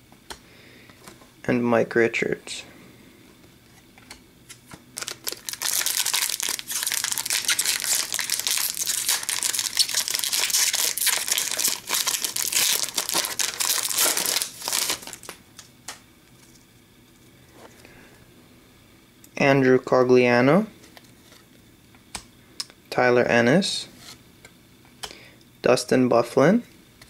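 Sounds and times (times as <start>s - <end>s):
plastic wrapper crinkling: 5.0s - 15.7s.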